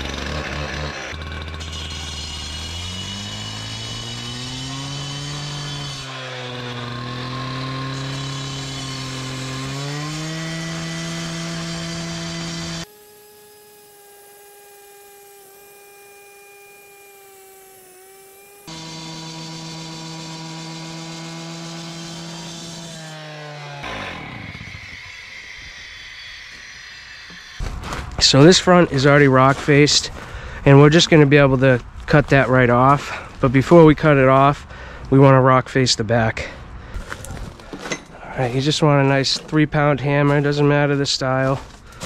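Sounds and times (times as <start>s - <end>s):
power saw cutting stone: 0.0s - 31.3s, 37.8s - 42.0s
water running on saw blade: 0.1s - 27.6s.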